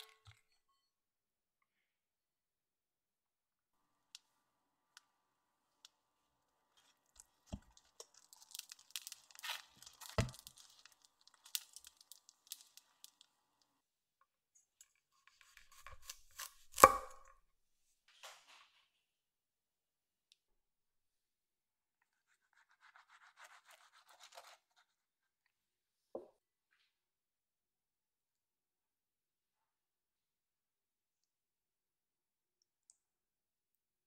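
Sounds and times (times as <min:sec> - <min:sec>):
knife chopping on wooden board: 0:15.5 - 0:17.3.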